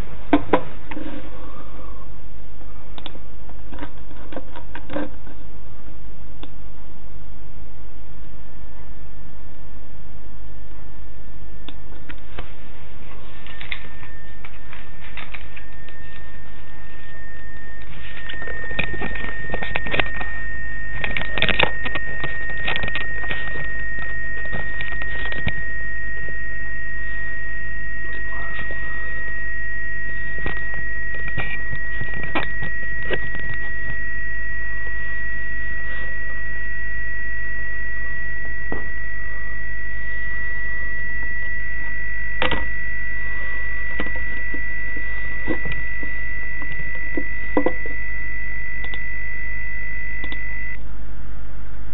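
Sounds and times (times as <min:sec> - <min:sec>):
low hum: 0:00.0 - 0:51.9
radio hiss: 0:10.7 - 0:51.9
clicks: 0:11.6 - 0:50.8
radio carrier whistle tone: 0:13.3 - 0:50.8.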